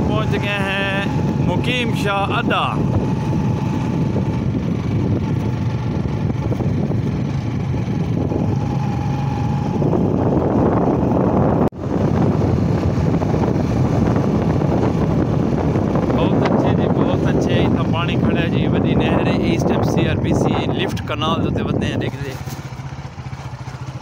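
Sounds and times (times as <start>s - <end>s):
vehicle running at road speed: 0.0s - 24.0s
wind rushing over microphone: 0.0s - 24.0s.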